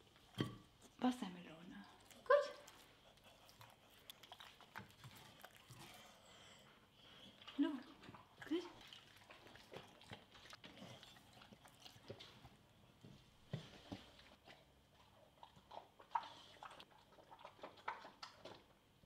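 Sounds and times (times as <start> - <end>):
dog chewing and lip smacking: 1.8 - 19.0.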